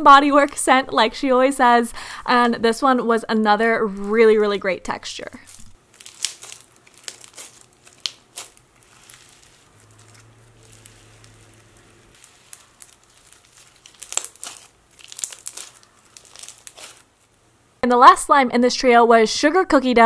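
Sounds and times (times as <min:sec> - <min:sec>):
slime crackling and popping: 0:05.4 - 0:17.4.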